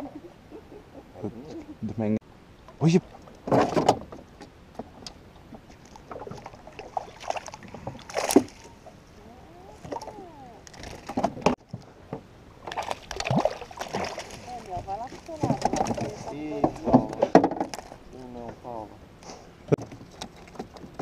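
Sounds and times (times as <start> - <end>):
water sloshing against boat hull: 3.0 - 9.0, 9.7 - 18.0, 19.8 - 21.0
fish splashing: 5.8 - 8.8, 12.6 - 16.1.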